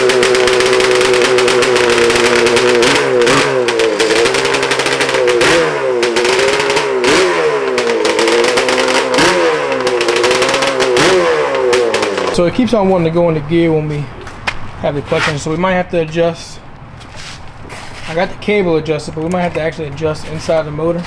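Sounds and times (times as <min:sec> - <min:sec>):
two-stroke engine revving: 0:00.0 - 0:12.9.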